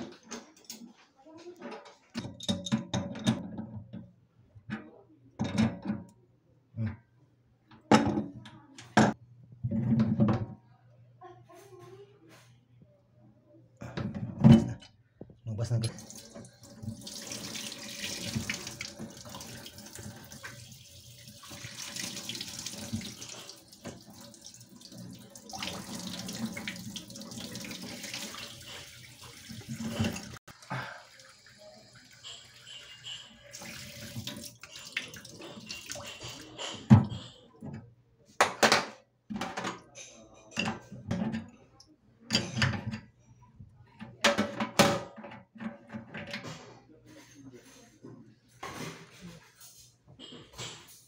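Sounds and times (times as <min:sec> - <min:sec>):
faucet fittings knocking and clacking: 0:01.8 - 0:04.1, 0:15.8 - 0:30.4, 0:32.1 - 0:37.8, 0:42.3 - 0:43.1
tap water running into metal sink: 0:15.9 - 0:37.3.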